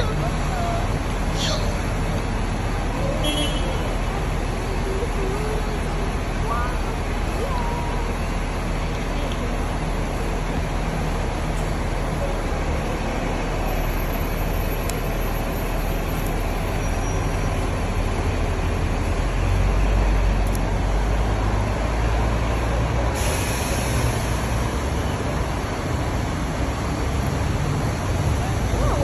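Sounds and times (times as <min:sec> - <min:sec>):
bus engine idling: 0:00.0 - 0:29.0.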